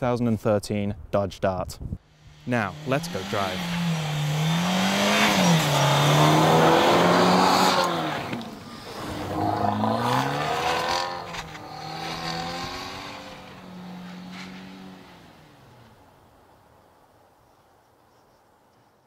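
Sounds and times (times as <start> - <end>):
car engine revving: 2.0 - 16.4
tyres spinning in snow: 2.5 - 16.6.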